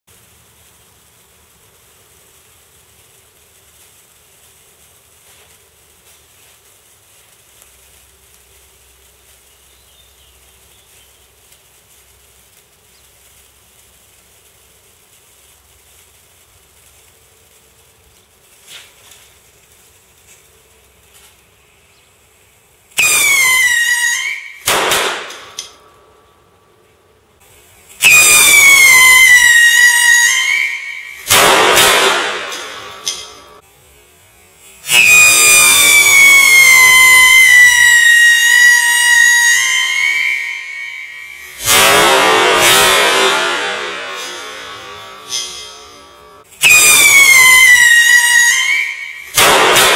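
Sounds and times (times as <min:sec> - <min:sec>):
fuse burning with faint hiss: 0:00.0 - 0:49.9
firework loud burst: 0:00.1 - 0:26.2, 0:27.4 - 0:33.6, 0:34.5 - 0:49.9
firework shrieking whistle: 0:22.9 - 0:25.9, 0:27.9 - 0:33.6, 0:34.8 - 0:49.9.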